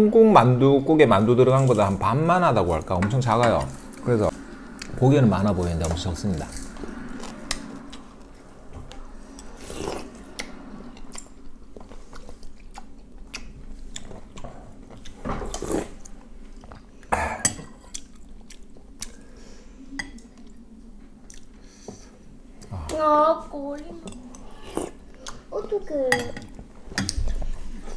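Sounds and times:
person chewing and slurping soup: 0:06.5 - 0:19.4, 0:21.2 - 0:22.8, 0:24.2 - 0:25.4.

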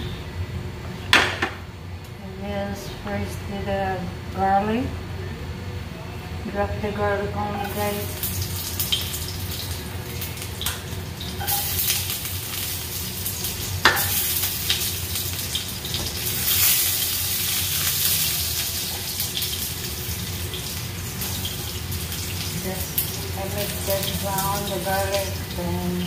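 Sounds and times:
garlic sizzling in hot oil: 0:07.6 - 0:26.0.

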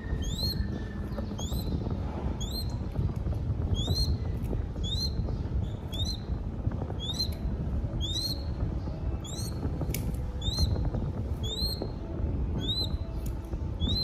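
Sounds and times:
bird chick squealing: 0:00.0 - 0:02.8, 0:03.7 - 0:06.3, 0:07.0 - 0:07.4, 0:08.0 - 0:08.5, 0:10.4 - 0:10.8, 0:11.4 - 0:11.9, 0:12.6 - 0:13.0
low rumble: 0:00.0 - 0:14.0.

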